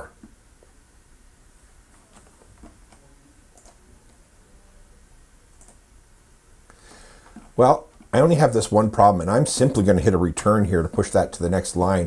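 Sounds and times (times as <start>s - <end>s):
computer mouse clicks: 3.6s - 3.8s, 5.6s - 5.8s.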